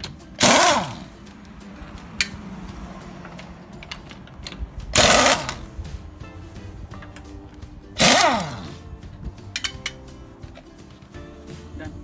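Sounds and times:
air impact wrench bursts: 0:00.4 - 0:01.1, 0:04.9 - 0:05.7, 0:08.0 - 0:08.7.

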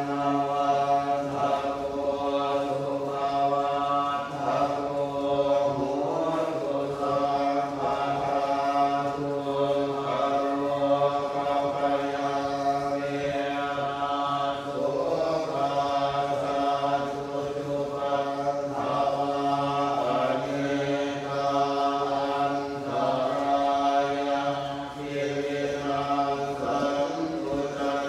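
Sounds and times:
monks chanting in monotone: 0:00.0 - 0:28.0.

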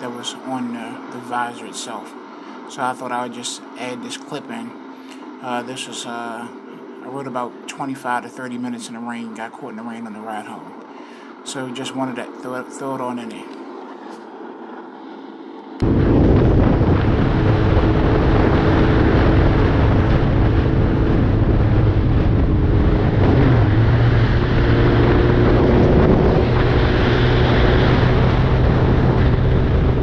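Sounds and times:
motorcycle engine hum: 0:13.6 - 0:30.0
wind rushing over microphone: 0:15.8 - 0:30.0.

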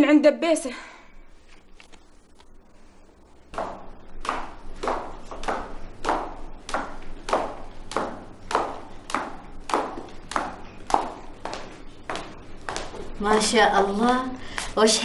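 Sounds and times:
footsteps on marble: 0:03.3 - 0:15.0.

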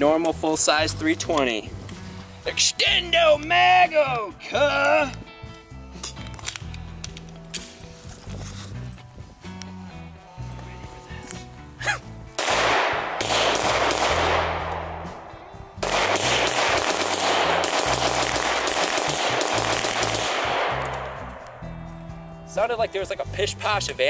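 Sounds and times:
pistol fired rapidly: 0:12.4 - 0:21.6.

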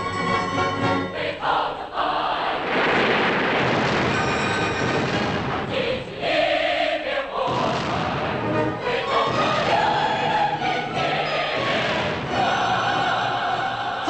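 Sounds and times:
choir singing sustained chords: 0:00.0 - 0:02.9, 0:05.4 - 0:14.0
gunfire: 0:02.6 - 0:06.2, 0:07.5 - 0:10.4
explosions: 0:02.6 - 0:06.4, 0:07.5 - 0:11.0, 0:11.6 - 0:12.8.

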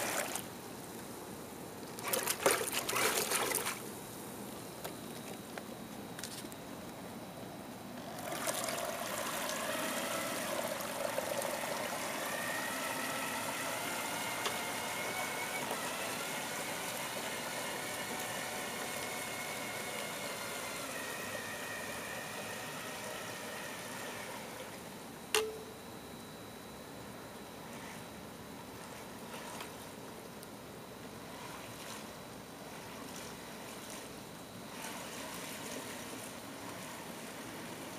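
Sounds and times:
paddlewheel churning water: 0:00.0 - 0:00.4, 0:02.0 - 0:03.9, 0:08.1 - 0:24.8, 0:31.1 - 0:37.9
small electric motor whine: 0:08.0 - 0:26.6, 0:27.4 - 0:29.8, 0:31.1 - 0:37.9.

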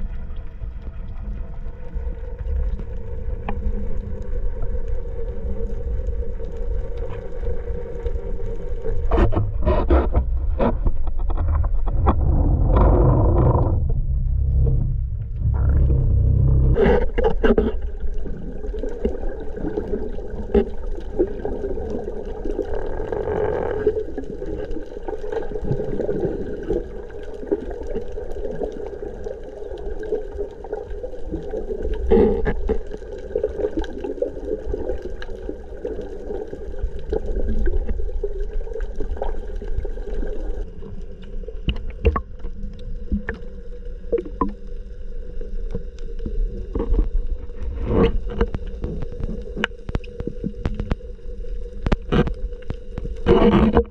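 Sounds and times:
underwater droning hum: 0:00.0 - 0:53.9
sharp clicks and crackles: 0:02.4 - 0:44.8, 0:45.5 - 0:53.9.

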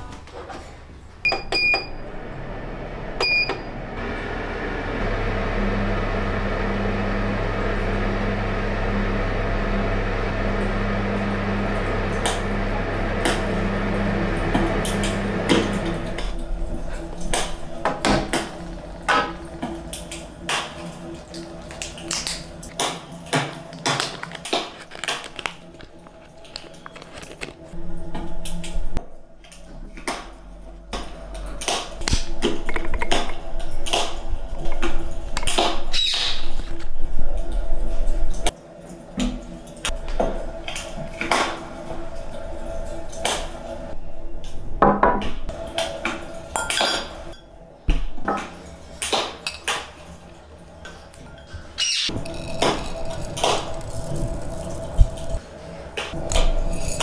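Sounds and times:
plastic wrapper crinkling: 0:23.6 - 0:27.8, 0:52.1 - 0:55.4
glassware clinking: 0:46.6 - 0:47.1.

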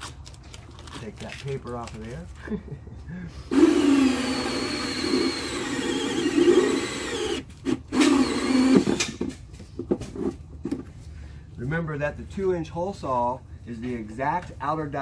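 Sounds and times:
cordless drill with hole saw: 0:03.5 - 0:09.2.

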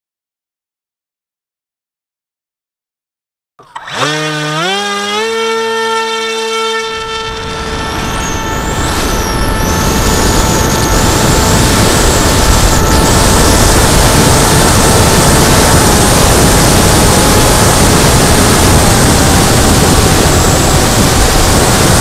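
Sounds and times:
electric motor whine: 0:03.6 - 0:22.0
rushing wind noise: 0:05.7 - 0:22.0.

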